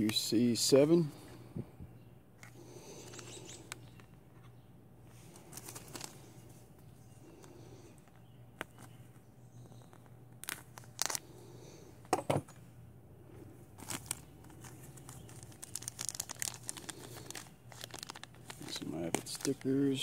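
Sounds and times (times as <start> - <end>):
plastic bag crinkling: 5.2 - 6.5, 9.9 - 11.3, 13.7 - 20.0.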